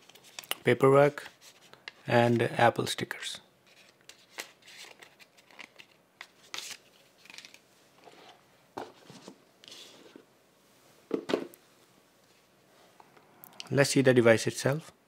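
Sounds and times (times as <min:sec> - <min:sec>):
paper rustling: 0:03.7 - 0:10.2.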